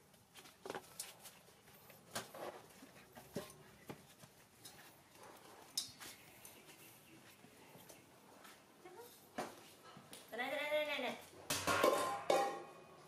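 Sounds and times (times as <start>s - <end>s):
metal pot clanking on concrete: 11.5s - 13.0s.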